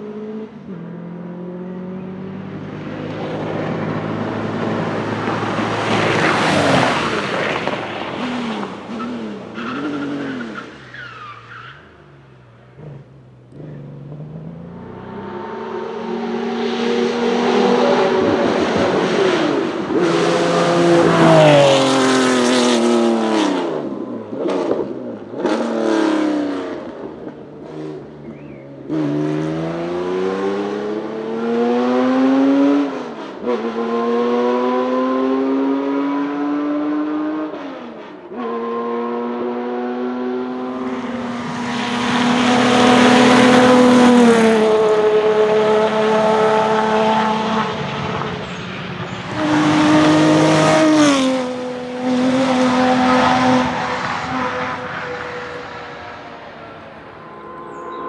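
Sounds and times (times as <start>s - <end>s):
race car engine passing: 0.0s - 58.0s
race car passing high note: 40.0s - 58.0s.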